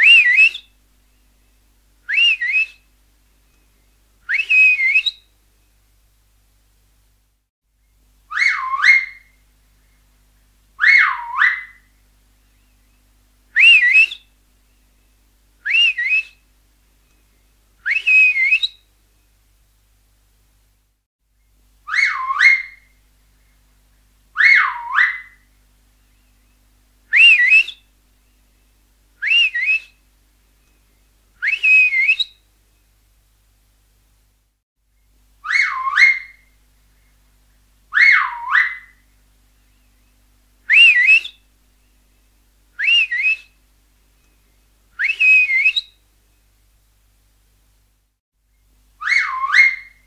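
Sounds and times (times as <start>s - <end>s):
swooping finger whistles: 2.1s - 2.8s, 4.3s - 5.2s, 13.6s - 14.2s, 15.7s - 16.4s, 17.8s - 18.8s, 27.2s - 27.8s, 29.2s - 29.9s, 31.4s - 32.3s, 40.7s - 41.4s, 42.8s - 43.5s, 45.0s - 45.9s.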